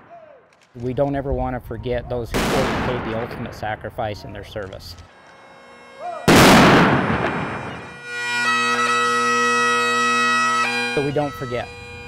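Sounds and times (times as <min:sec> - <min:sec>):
rifle volley crack echoing: 0:00.0 - 0:00.8, 0:06.2 - 0:08.1
bagpipe playing: 0:04.0 - 0:12.0.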